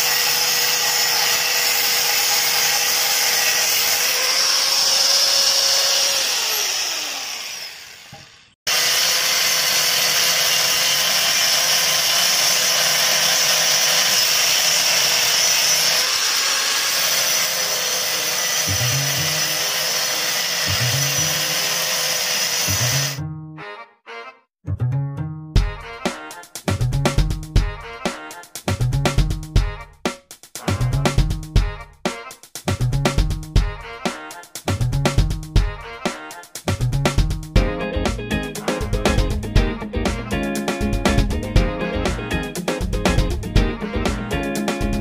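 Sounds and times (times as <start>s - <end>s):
angle grinder cutting metal: 0.0s - 23.2s.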